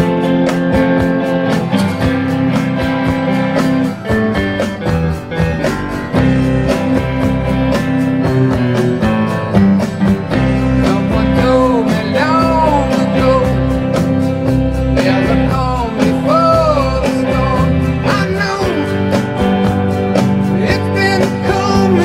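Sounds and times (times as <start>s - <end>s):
electric guitar: 0.0s - 22.0s
rock band playing: 0.0s - 22.0s
man singing: 10.4s - 14.2s, 14.8s - 19.2s, 20.5s - 22.0s.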